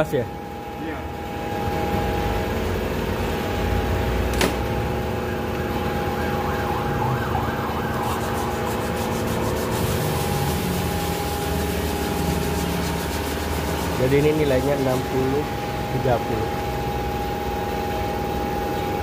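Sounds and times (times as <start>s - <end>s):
machine hum with high whine: 0.0s - 19.0s
fast regular scraping: 8.0s - 15.1s.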